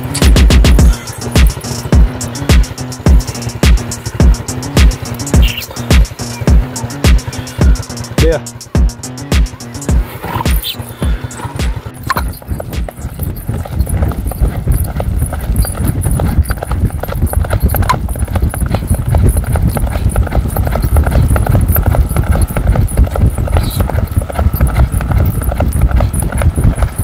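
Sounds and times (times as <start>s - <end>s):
horse hooves galloping: 0.0s - 27.0s.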